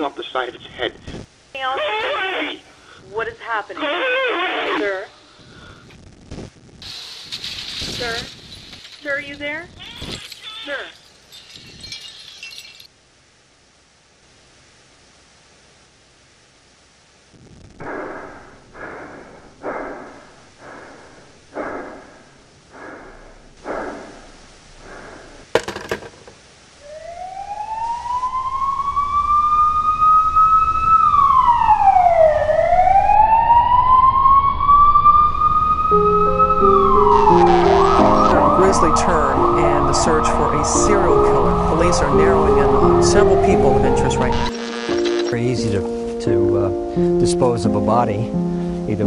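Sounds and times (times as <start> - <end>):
police siren wailing: 26.8 - 44.6
music: 35.9 - 49.0.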